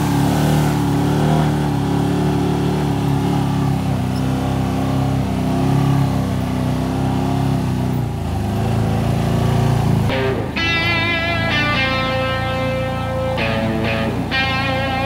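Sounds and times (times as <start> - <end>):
engine running under load: 0.0 - 15.0
guitar music: 10.1 - 15.0.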